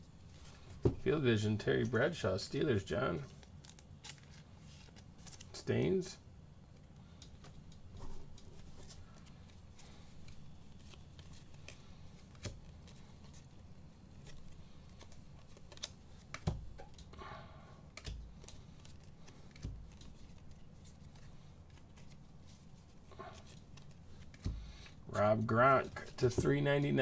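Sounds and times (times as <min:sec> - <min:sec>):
trading cards flicking and sliding: 0:06.7 - 0:17.2, 0:17.9 - 0:26.9.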